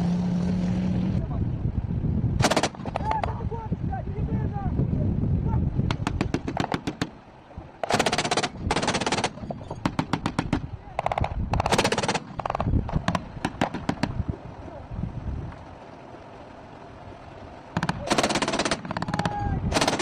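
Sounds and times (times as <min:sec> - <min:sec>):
autocannon firing bursts: 0:02.4 - 0:03.2, 0:06.0 - 0:07.2, 0:07.8 - 0:14.2, 0:17.8 - 0:20.0.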